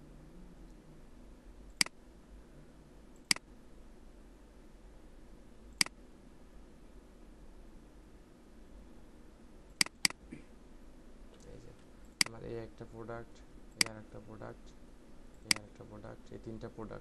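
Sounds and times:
faint low hum: 0:00.0 - 0:17.0
computer mouse clicks: 0:05.8 - 0:06.0, 0:09.8 - 0:10.2, 0:15.4 - 0:15.7.

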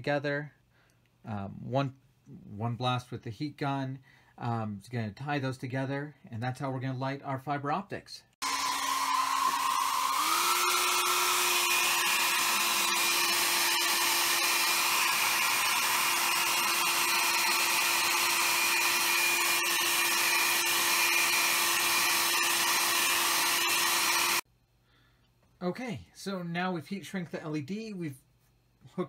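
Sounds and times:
hair dryer blowing: 0:08.4 - 0:24.4.

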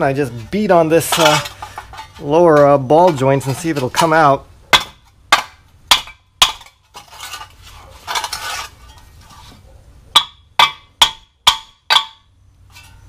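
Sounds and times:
metal clatter: 0:00.2 - 0:05.1, 0:05.9 - 0:13.0
hammer striking metal: 0:04.7 - 0:06.7, 0:10.2 - 0:12.3.

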